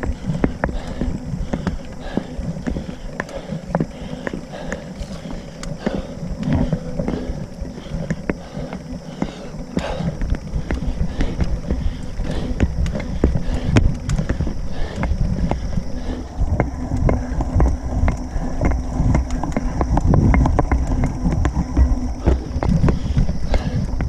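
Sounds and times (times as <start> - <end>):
bike rattling and knocking: 0.0 - 24.0
bike tyres rumbling: 0.0 - 24.0
wind on microphone: 9.8 - 24.0.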